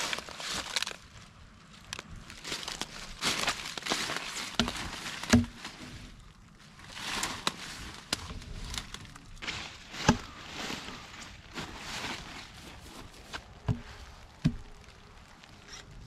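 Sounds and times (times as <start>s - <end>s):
footsteps crunching through dry brush: 0.0s - 1.2s, 1.9s - 15.4s
wooden knocks and clicks of logs: 4.6s - 5.6s, 13.2s - 14.8s.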